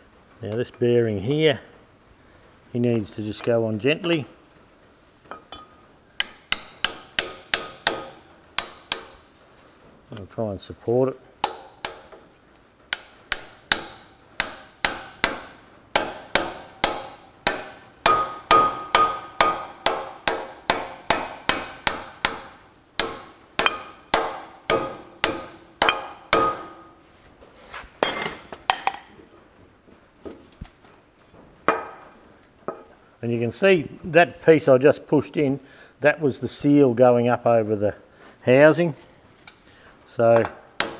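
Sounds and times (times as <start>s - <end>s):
hammer tapping metal: 5.3s - 9.3s, 11.4s - 12.3s, 12.9s - 27.0s, 28.0s - 29.1s.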